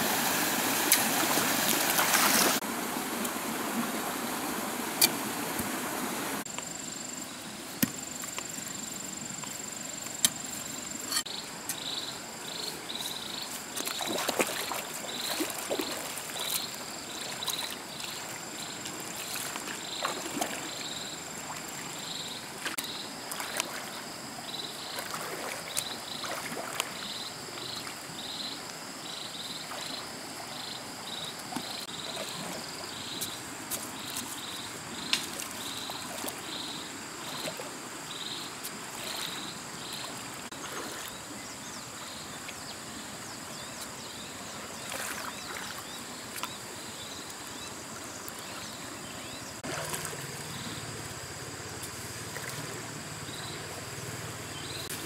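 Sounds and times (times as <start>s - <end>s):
water sloshing and splashing: 0.0s - 6.4s, 12.9s - 28.0s, 35.2s - 36.6s, 38.8s - 41.3s, 44.6s - 46.7s, 49.6s - 50.7s, 51.6s - 55.0s
insects chirping: 0.0s - 55.0s.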